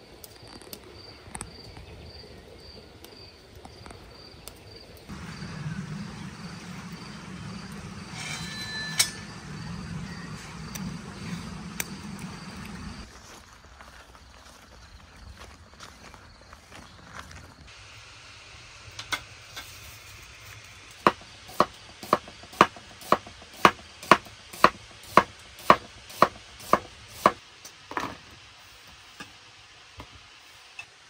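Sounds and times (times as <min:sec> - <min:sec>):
knife chopping on cutting board: 0:21.6 - 0:27.4.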